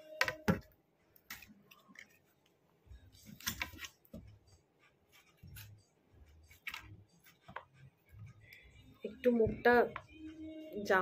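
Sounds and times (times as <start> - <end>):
soft low thumps: 9.1 - 10.4.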